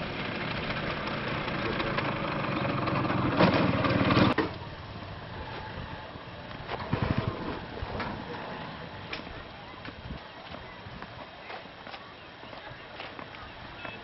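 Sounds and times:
motorcycle riding away: 0.0s - 4.4s
scooter engine running: 0.0s - 4.4s, 6.8s - 7.6s
wheels clattering over sleepers: 0.0s - 4.7s, 5.3s - 14.0s.

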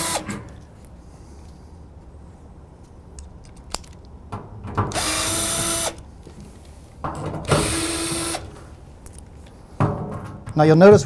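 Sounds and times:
cordless drill running: 0.0s - 0.3s, 4.9s - 6.0s, 7.5s - 8.5s.

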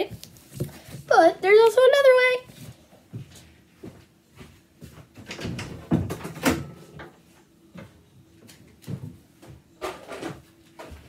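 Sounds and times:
knocks and clatter of objects: 5.1s - 7.2s, 8.9s - 11.0s.

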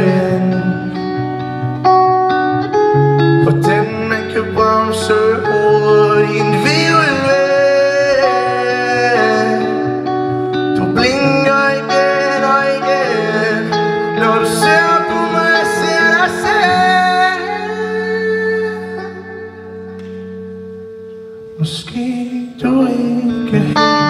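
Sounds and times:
man singing long sliding notes: 0.0s - 1.0s, 3.4s - 10.1s, 10.7s - 19.6s
electric guitar chords: 0.0s - 24.0s.

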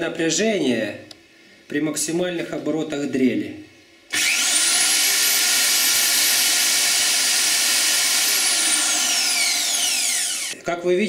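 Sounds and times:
electric drill whine: 4.1s - 10.6s.

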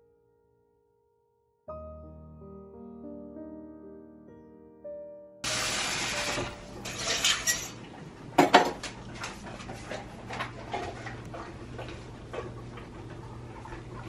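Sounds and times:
tap water running into sink: 5.4s - 9.8s
metal bowl clanking: 6.3s - 8.9s.

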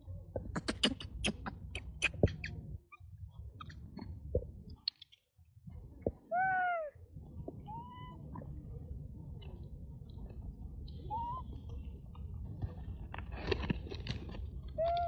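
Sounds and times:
monkey call: 6.3s - 7.0s, 7.7s - 8.2s, 11.1s - 11.5s.

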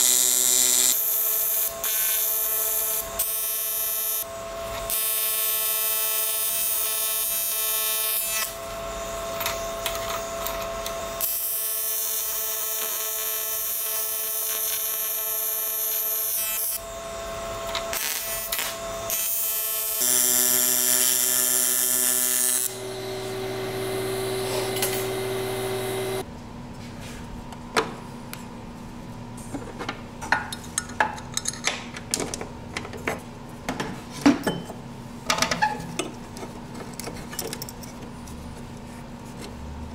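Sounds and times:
welding arc buzzing: 0.0s - 26.2s.

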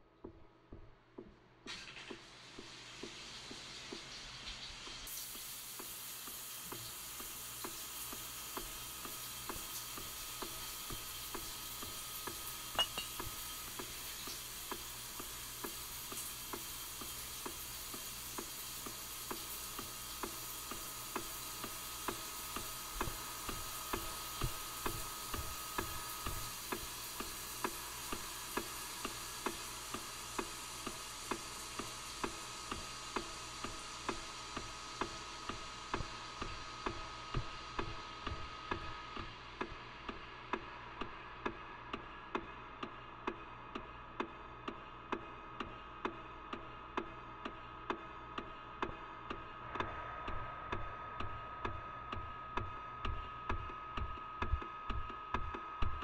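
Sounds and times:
sizzling hiss: 1.7s - 39.0s
regular ticking pulse: 48.4s - 56.0s.

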